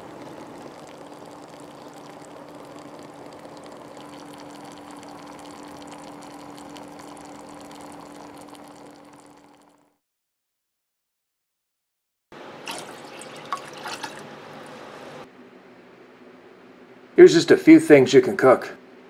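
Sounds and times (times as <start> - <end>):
low hum: 0.0 - 10.0
water boiling in a pot: 0.0 - 10.0, 12.4 - 15.3.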